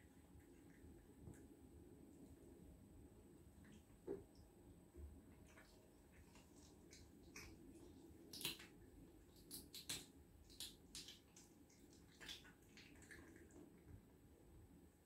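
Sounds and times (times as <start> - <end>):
cat chewing wetly: 5.3 - 14.2.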